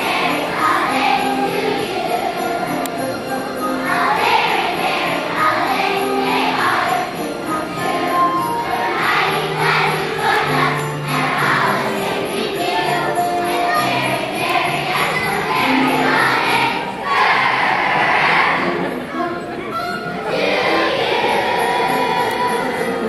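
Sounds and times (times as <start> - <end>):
children's choir singing: 0.0 - 23.0.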